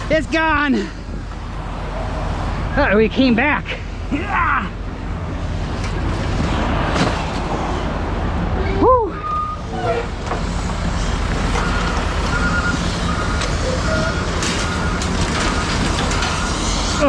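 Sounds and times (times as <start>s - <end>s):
heavy vehicle engine rumbling: 0.0s - 17.0s
reverse alarm beeping: 11.5s - 17.0s.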